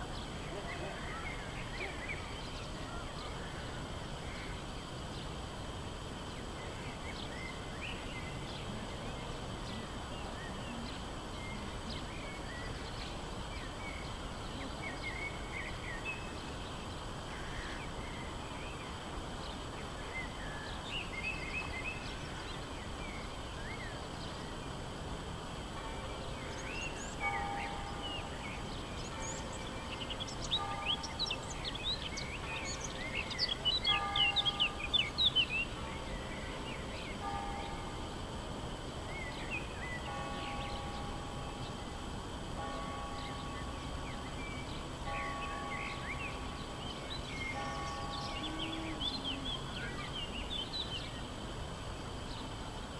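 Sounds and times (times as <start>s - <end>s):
faint repeated steady tones: 0.0s - 52.9s
town background noise: 0.0s - 52.9s
birds chirping: 25.8s - 38.1s, 39.0s - 51.3s.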